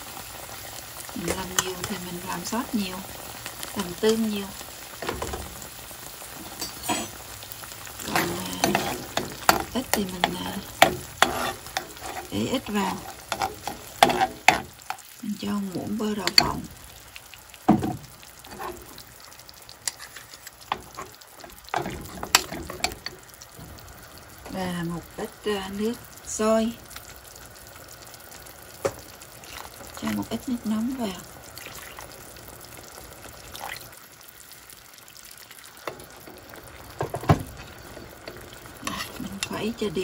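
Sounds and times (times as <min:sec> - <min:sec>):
faint sizzle from hot pan: 0:00.0 - 0:40.0
metal spoons clinking and scraping: 0:06.5 - 0:07.2
spoon stirring sauce in a pan: 0:08.0 - 0:15.2, 0:17.7 - 0:23.2, 0:35.6 - 0:39.6
spoon knocking against pan: 0:08.6 - 0:11.9, 0:13.3 - 0:15.0.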